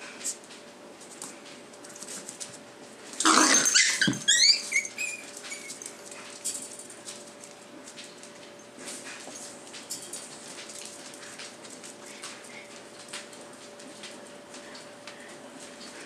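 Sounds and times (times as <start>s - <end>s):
puppy yelping: 3.2s - 5.9s.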